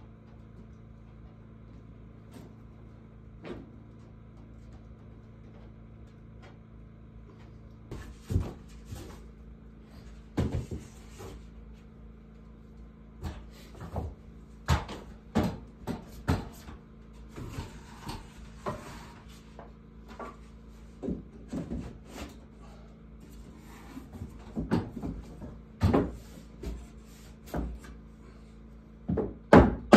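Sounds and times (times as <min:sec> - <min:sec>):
faint steady hum: 0:00.0 - 0:29.9
wooden boards knocking: 0:29.1 - 0:29.9.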